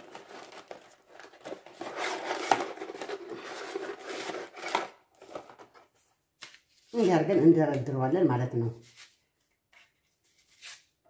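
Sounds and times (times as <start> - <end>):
cardboard box rustling and scraping: 0.0 - 5.7.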